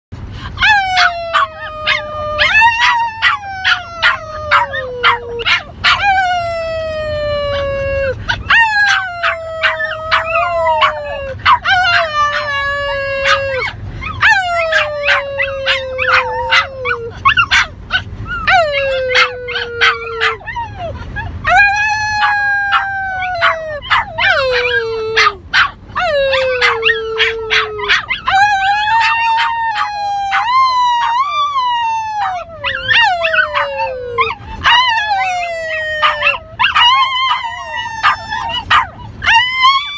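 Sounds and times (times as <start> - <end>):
dogs yipping and barking: 0.4 - 39.9
dogs howling: 0.6 - 39.9.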